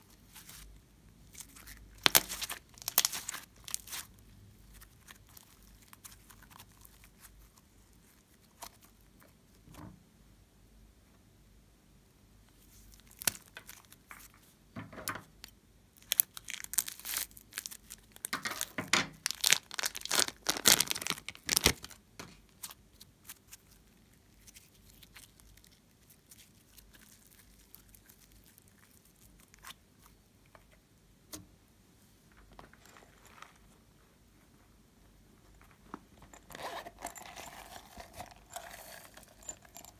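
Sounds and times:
plastic bag crinkling: 1.3 - 7.0, 16.0 - 22.0, 36.2 - 39.9.

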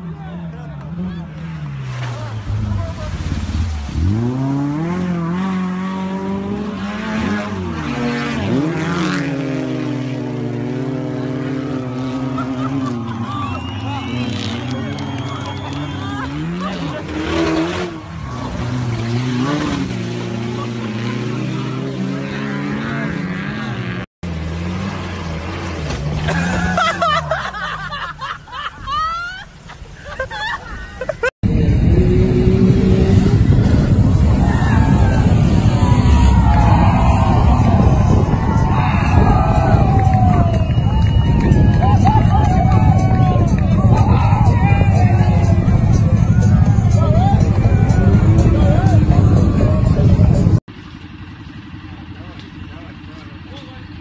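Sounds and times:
off-road vehicle engine revving: 0.0 - 28.4, 31.4 - 54.0
pickup truck engine revving: 1.7 - 28.0
people shouting excitedly: 34.1 - 50.4.

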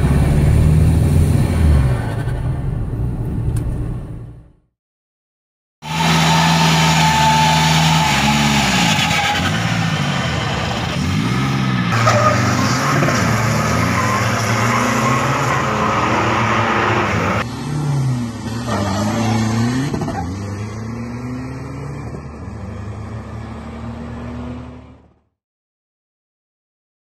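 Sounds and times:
diesel engine revving hard: 5.8 - 24.9.

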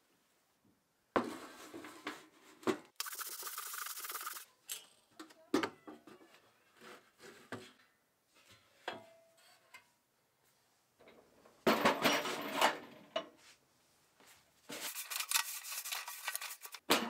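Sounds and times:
knocks and metal clanks: 11.6 - 13.0
tool box landing with clatter: 11.7 - 13.0.

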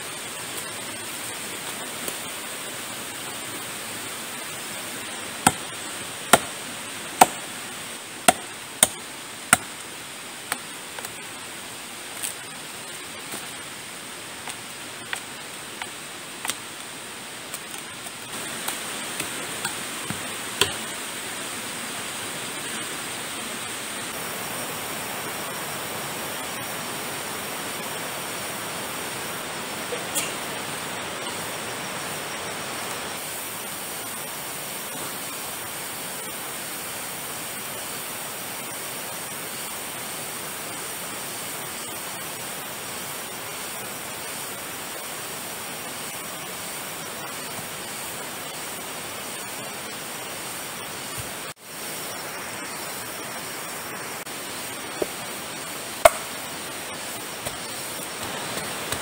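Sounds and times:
steady hiss: 0.0 - 59.0
machete chopping bamboo: 5.4 - 6.6, 7.2 - 7.5, 8.2 - 9.8, 18.6 - 20.9, 56.0 - 56.4.

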